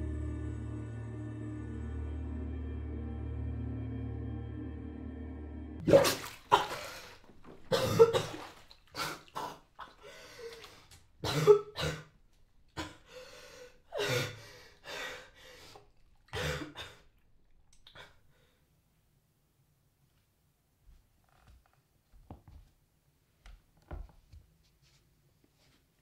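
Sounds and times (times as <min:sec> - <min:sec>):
low music drone: 0:00.0 - 0:05.8
woman coughing and gasping: 0:05.9 - 0:10.0, 0:11.2 - 0:12.2.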